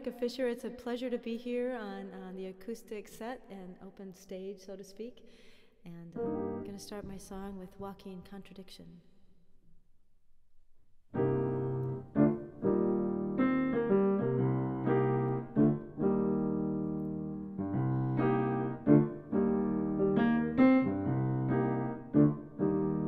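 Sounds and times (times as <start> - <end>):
grand piano chords: 6.2 - 7.3, 11.1 - 23.0.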